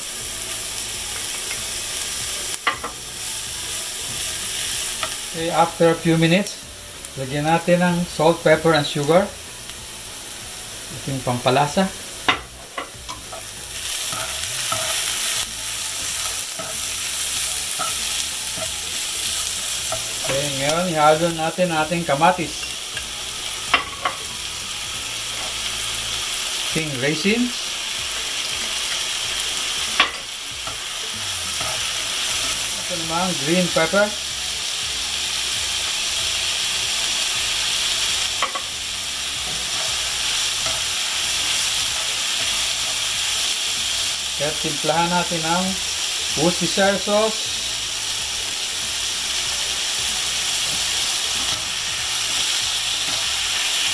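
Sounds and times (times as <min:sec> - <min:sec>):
vegetables sizzling in oil: 0:00.0 - 0:53.9
spatula scraping a pan: 0:12.3 - 0:20.7.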